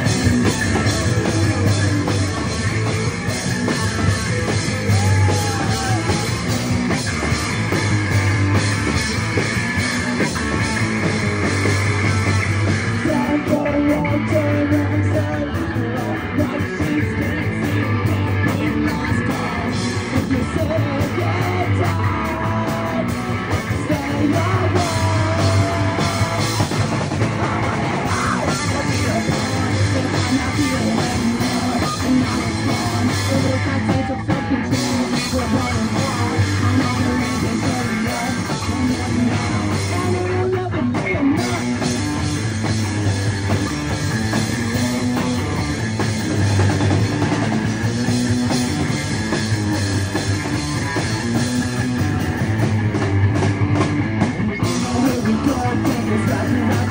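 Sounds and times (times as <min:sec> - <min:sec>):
person singing: 0:00.0 - 0:47.5, 0:54.6 - 0:56.9
bass guitar: 0:00.0 - 0:56.9
drum kit: 0:00.0 - 0:56.9
electric guitar: 0:00.0 - 0:56.9.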